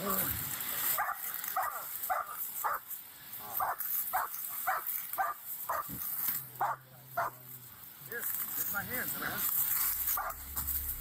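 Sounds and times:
dog barking: 1.0 - 2.9, 3.5 - 6.0, 6.6 - 7.4, 10.1 - 10.4.

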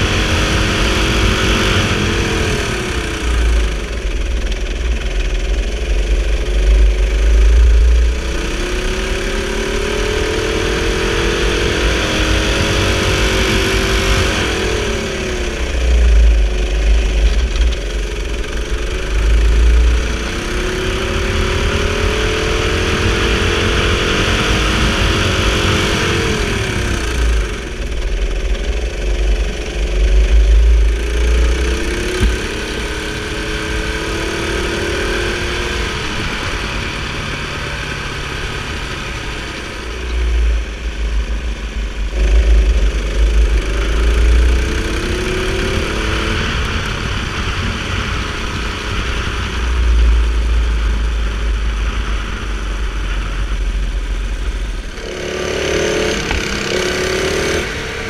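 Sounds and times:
deep rumble: 0.0 - 58.0
go-kart engine accelerating: 0.0 - 58.0.

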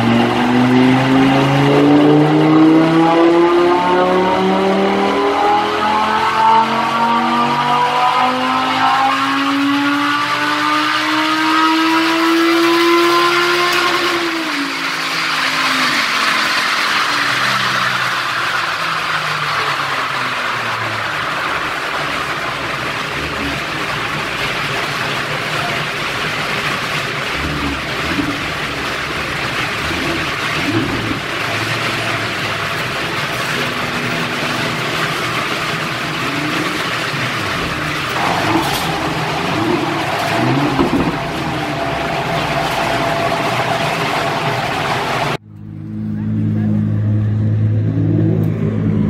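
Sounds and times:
constant rushing noise: 0.0 - 45.4
car engine running steadily: 0.0 - 49.0
thin steady whine: 37.0 - 47.4.

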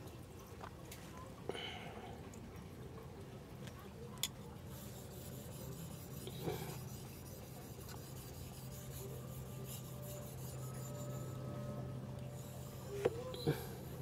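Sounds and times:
knife scraping on whetstone: 4.7 - 14.0
low hum: 5.1 - 14.0.

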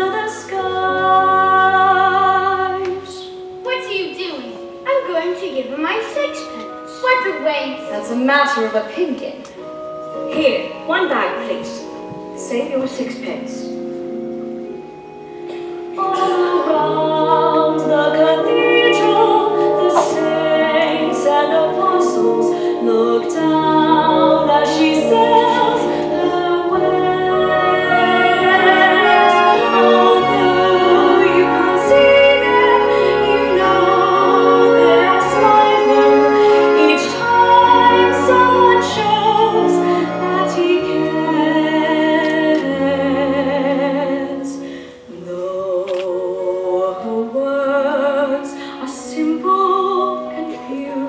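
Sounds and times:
pit orchestra playing: 0.0 - 45.2
woman singing slow ballad: 15.8 - 51.0.

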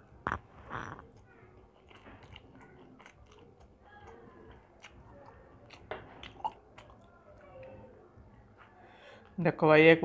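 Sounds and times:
mouth chewing noodles: 0.0 - 8.5
small wet mouth clicks: 0.2 - 7.2.

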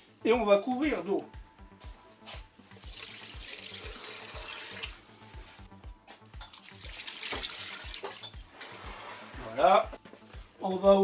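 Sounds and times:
water pouring into a metal pot: 2.8 - 5.0, 6.5 - 8.4.

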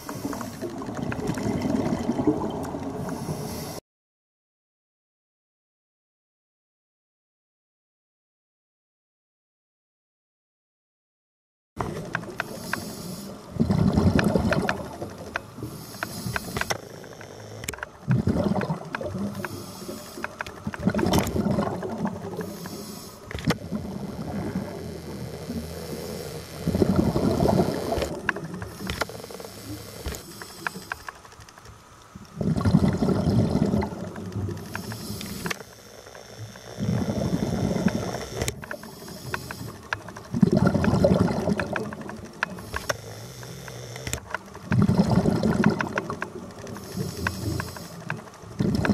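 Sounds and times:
regulator inhalation hiss: 0.0 - 0.7, 3.1 - 3.8, 12.4 - 13.4, 14.9 - 17.7, 19.3 - 20.4, 22.3 - 31.2, 34.6 - 40.0, 42.5 - 44.1, 46.7 - 48.1
exhaled bubbles rushing: 0.0 - 3.4, 13.5 - 15.7, 18.0 - 19.5, 20.6 - 22.6, 23.6 - 24.8, 26.6 - 28.9, 32.4 - 34.7, 40.1 - 42.4, 44.6 - 47.1.

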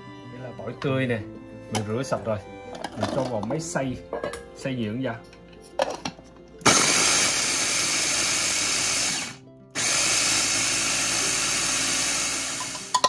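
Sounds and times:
electric blender grinding: 6.6 - 13.0.

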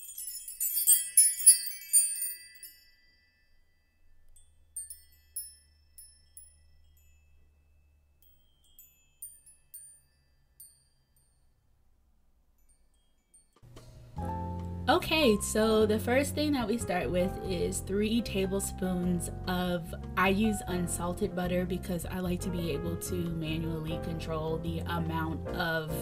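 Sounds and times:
bright chime-like tinkles: 0.0 - 13.7.

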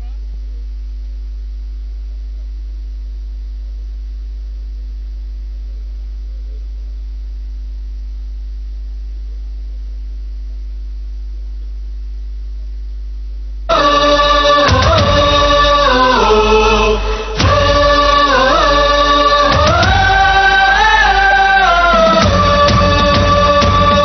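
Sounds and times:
faint steady tones: 0.0 - 24.0
low electrical hum: 0.0 - 24.0
loud chanted music: 13.7 - 24.0.

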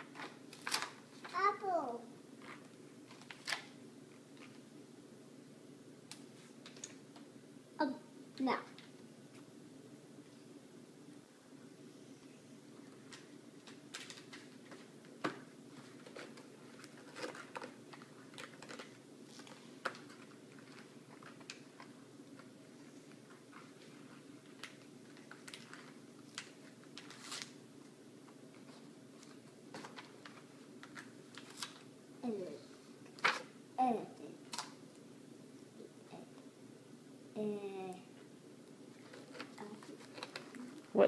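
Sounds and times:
hands handling paper: 0.0 - 1.4, 12.9 - 31.9, 38.9 - 40.9
low room hum: 0.0 - 41.0.

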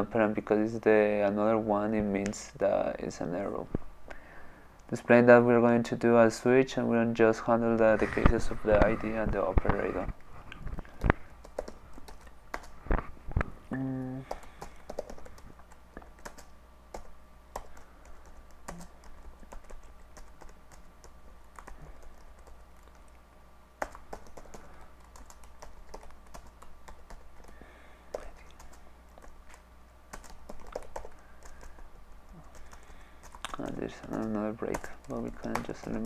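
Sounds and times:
low hum: 6.4 - 14.5
keyboard typing clicks: 14.3 - 20.6.

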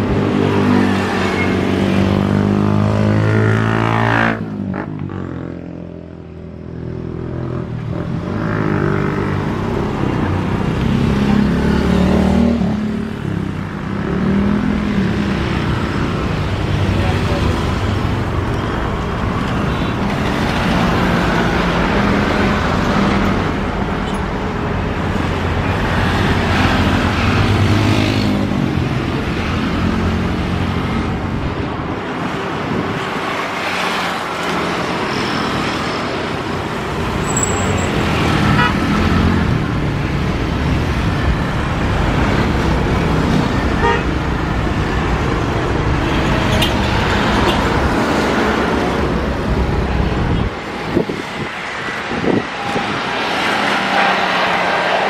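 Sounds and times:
road traffic: 0.0 - 55.0
jet engines roaring: 51.8 - 55.0.

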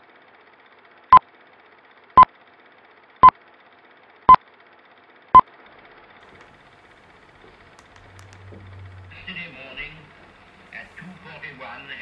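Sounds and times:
faint hiss: 6.4 - 12.0.

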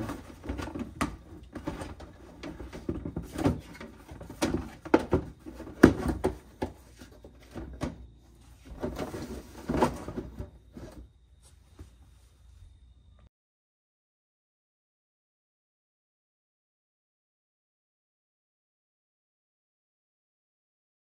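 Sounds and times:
plastic liner knocking and scraping: 0.0 - 11.1.

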